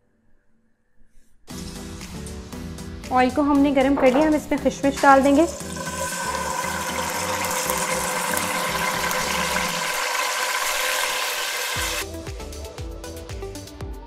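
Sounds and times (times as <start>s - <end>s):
food sizzling in hot oil: 5.0s - 12.0s.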